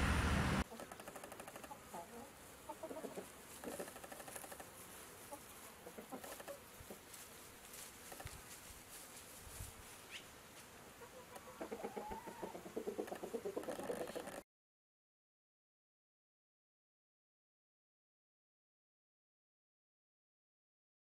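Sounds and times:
loud rushing noise: 0:00.0 - 0:00.6
chickens clucking: 0:00.6 - 0:07.2, 0:11.0 - 0:14.4.

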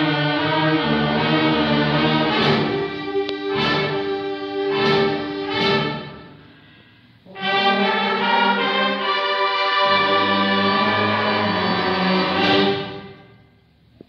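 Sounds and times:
school band held chord: 0:00.0 - 0:13.4
hall echo: 0:01.2 - 0:07.9.

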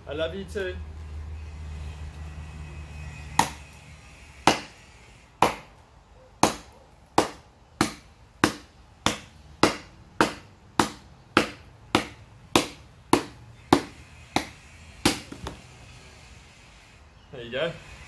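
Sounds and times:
blade chopping wood: 0:03.4 - 0:03.6, 0:04.4 - 0:04.8, 0:05.4 - 0:05.7, 0:06.4 - 0:15.6.

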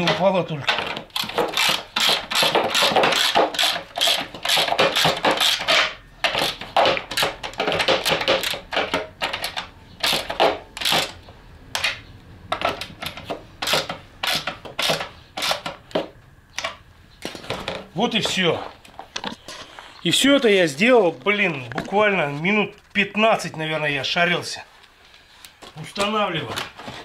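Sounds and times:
nuts and bolts clicking and rattling: 0:00.0 - 0:19.4.

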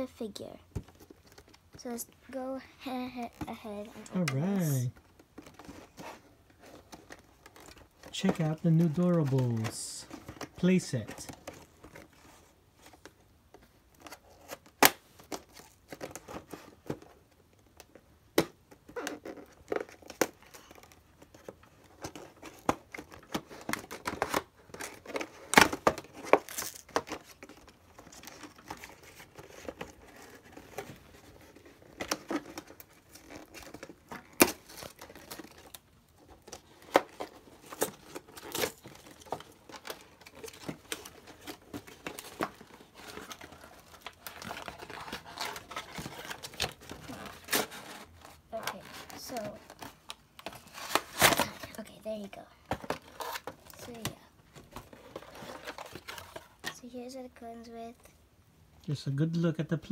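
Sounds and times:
cardboard packaging tearing: 0:22.1 - 0:51.8.

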